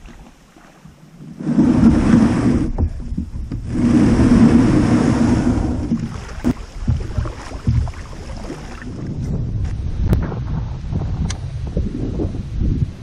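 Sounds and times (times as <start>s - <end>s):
plastic hull scraping over mud: 0.0s - 9.4s.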